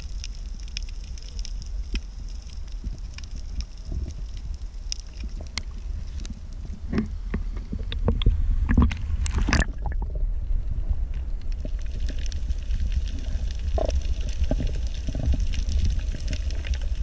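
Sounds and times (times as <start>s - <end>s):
clicks and crackles: 0.0s - 10.2s, 11.1s - 17.0s
underwater rumble: 0.0s - 17.0s
water splashing: 8.7s - 10.2s.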